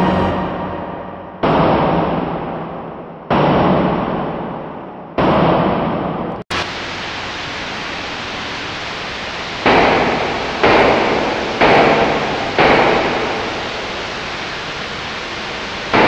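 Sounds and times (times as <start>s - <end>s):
sudden noise bursts: 0.0s - 16.0s
loud static-like noise: 5.6s - 16.0s
steady hiss: 6.5s - 16.0s.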